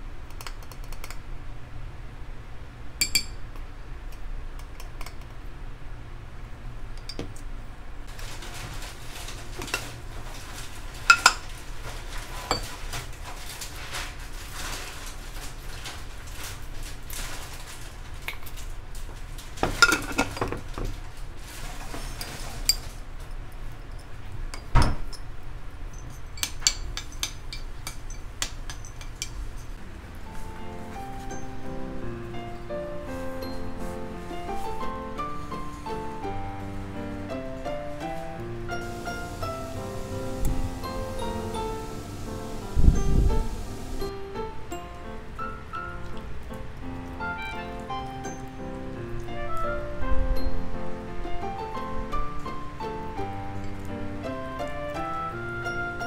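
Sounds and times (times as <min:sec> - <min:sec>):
cutlery clinking on dishes: 0:11.1 - 0:11.4, 0:12.4 - 0:13.1, 0:19.6 - 0:20.9.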